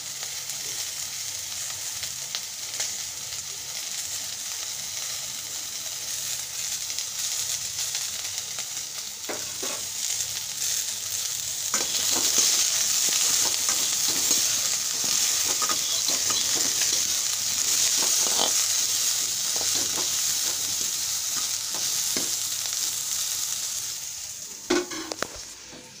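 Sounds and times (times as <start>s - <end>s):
cauliflower sizzling in pan: 0.0s - 26.0s
stirring scrapes and taps: 11.8s - 18.7s.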